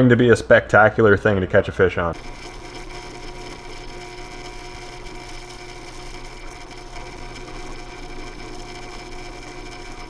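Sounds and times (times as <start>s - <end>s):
drill bit boring into wood: 2.1s - 10.0s
drill press motor hum: 2.1s - 10.0s.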